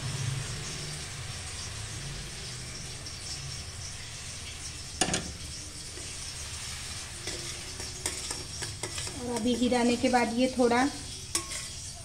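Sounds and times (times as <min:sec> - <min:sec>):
syrup sizzling in pan: 0:00.0 - 0:12.0
metal clank: 0:05.0 - 0:05.4.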